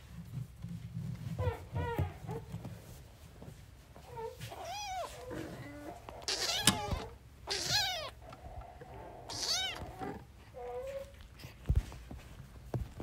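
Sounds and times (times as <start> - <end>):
kittens mewing: 4.5 - 11.1.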